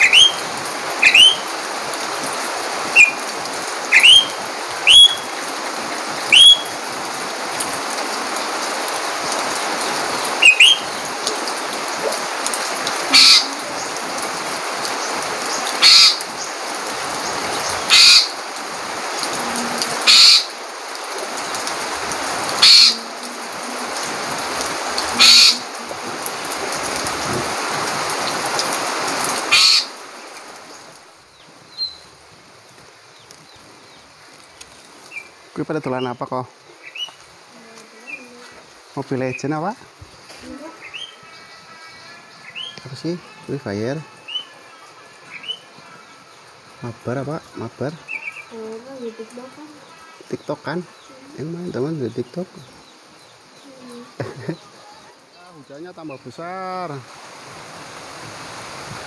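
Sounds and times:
bird chirping and calling: 0.0 - 1.6, 2.8 - 5.5, 6.2 - 6.8, 10.1 - 14.0, 14.8 - 18.4, 19.2 - 20.6, 22.4 - 25.8, 29.5 - 30.0, 31.7 - 32.1, 35.1 - 38.6, 40.4 - 46.5, 48.0 - 54.9
heavy rain falling: 0.0 - 59.0.

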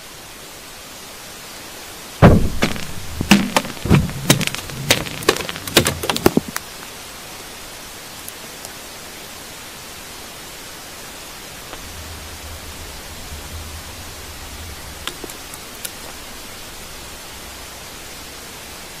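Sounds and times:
steady hiss: 0.0 - 19.0
low hum: 2.2 - 6.6, 11.2 - 19.0.

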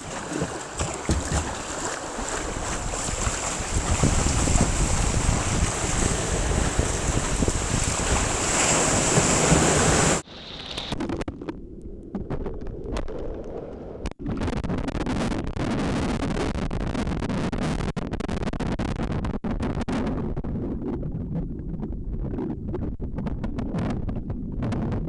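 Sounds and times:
wind buffeting microphone: 0.0 - 10.2
water splashing and sloshing: 0.0 - 14.5.

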